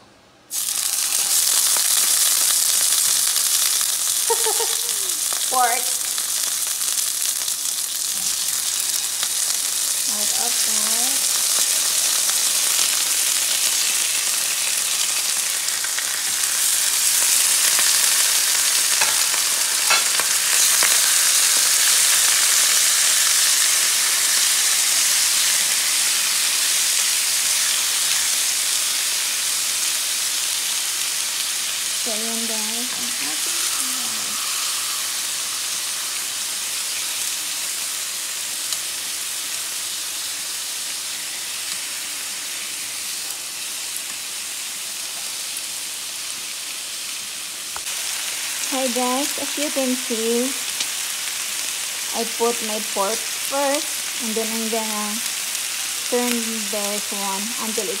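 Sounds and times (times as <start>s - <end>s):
meat sizzling in hot oil: 0.5s - 58.0s.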